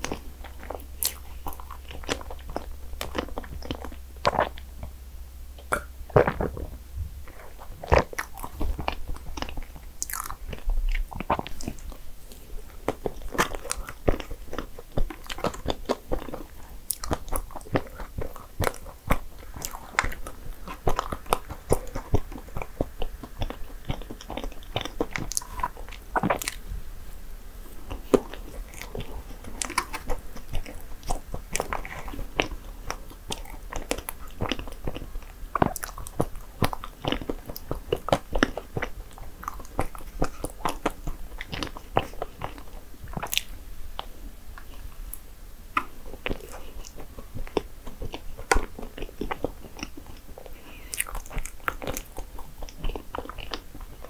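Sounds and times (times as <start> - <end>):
person biting and chewing: 0.0 - 5.0, 5.6 - 26.7, 27.7 - 45.2, 45.8 - 54.0
sharp mouth clicks: 5.6 - 6.7.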